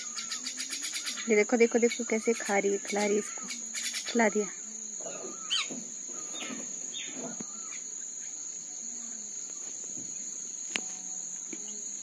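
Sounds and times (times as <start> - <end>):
faint bird calls: 0.0 - 4.3, 5.0 - 8.4
insects droning: 0.0 - 12.0.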